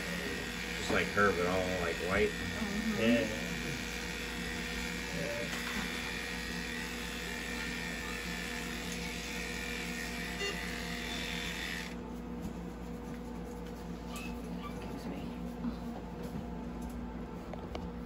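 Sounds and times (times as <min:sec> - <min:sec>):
electric clipper buzzing: 0:00.0 - 0:12.0.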